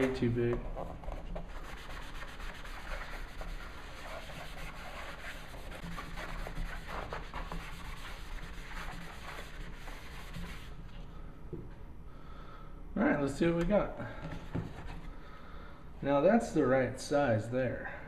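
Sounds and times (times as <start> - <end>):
sponge scrubbing cardboard: 0.0 - 10.8.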